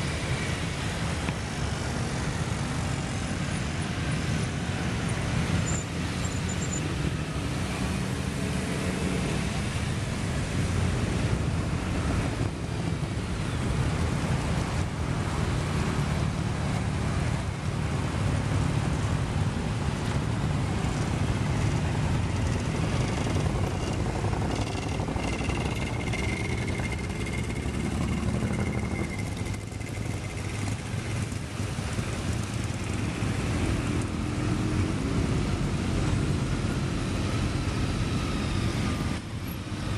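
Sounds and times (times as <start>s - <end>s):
motorcycles riding past: 15.5s - 39.2s.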